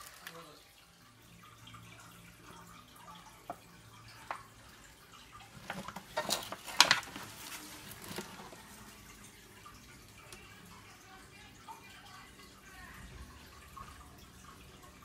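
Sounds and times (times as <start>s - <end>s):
plastic on foil ticking: 0.0s - 0.6s
crackling taps on foil tray: 5.6s - 7.4s.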